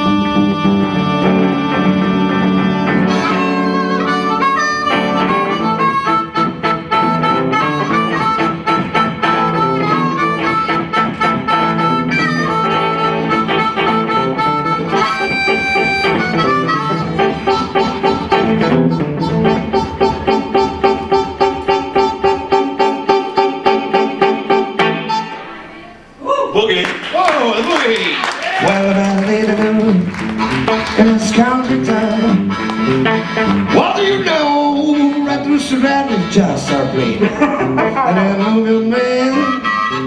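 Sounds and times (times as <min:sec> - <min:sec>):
blues harmonica solo: 0:00.0 - 0:26.2, 0:28.6 - 0:40.0
electric guitar accompaniment: 0:00.0 - 0:26.2, 0:27.9 - 0:40.0
steady rhythmic pulse: 0:00.6 - 0:25.7.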